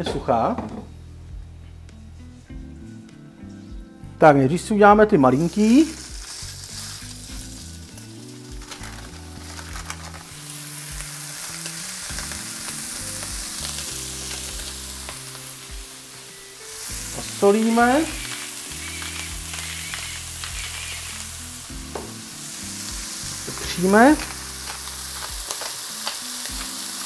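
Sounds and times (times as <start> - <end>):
meat patties sizzling in oil: 5.2 - 27.0.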